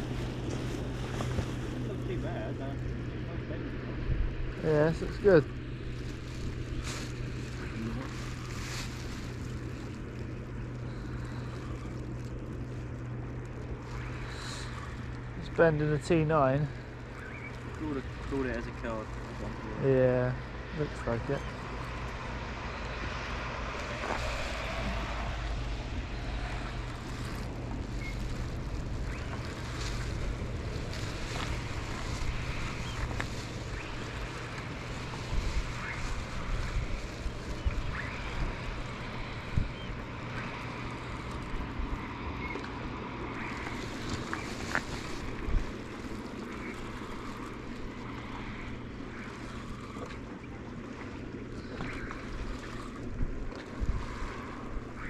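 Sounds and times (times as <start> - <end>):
wind rumbling on microphone: 0.0 - 55.0
water washing against rocks: 23.6 - 55.0.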